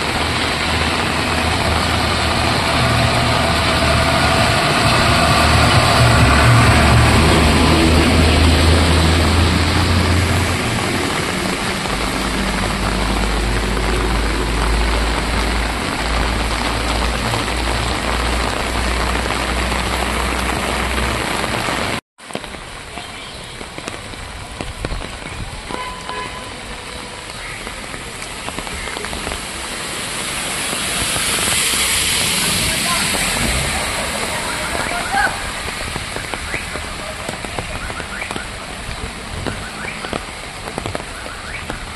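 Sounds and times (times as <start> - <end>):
heavy rain on street: 0.0 - 41.9
vehicle engine rumble: 0.0 - 41.9.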